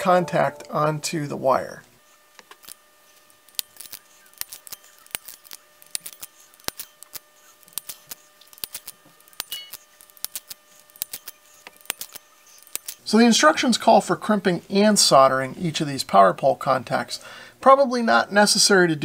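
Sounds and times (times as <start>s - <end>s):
crimping tool clicking: 3.5s - 13.0s
metallic clinks of small contacts: 3.5s - 13.0s.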